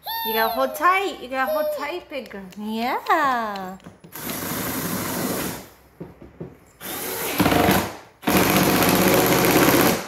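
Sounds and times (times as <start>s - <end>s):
power drill driving screws: 4.1s - 5.6s, 6.8s - 10.0s.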